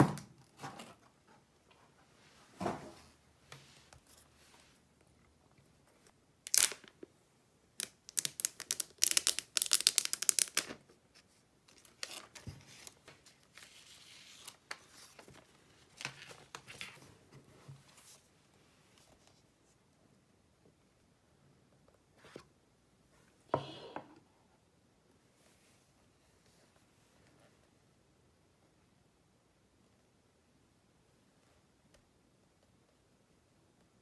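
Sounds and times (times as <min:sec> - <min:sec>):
plastic shrink wrap tearing: 0:06.5 - 0:06.9, 0:07.8 - 0:10.7
plastic film crinkling: 0:06.5 - 0:07.0, 0:07.8 - 0:10.8.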